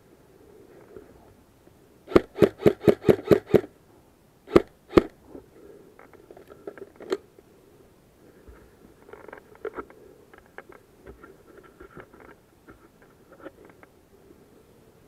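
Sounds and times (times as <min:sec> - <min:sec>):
airsoft rifle shots: 0:02.1 - 0:03.7, 0:04.5 - 0:05.2.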